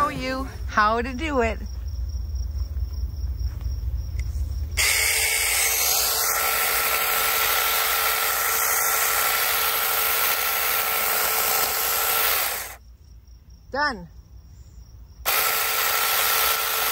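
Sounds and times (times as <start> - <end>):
mini chainsaw motor whine: 4.8 - 12.8, 15.3 - 16.9.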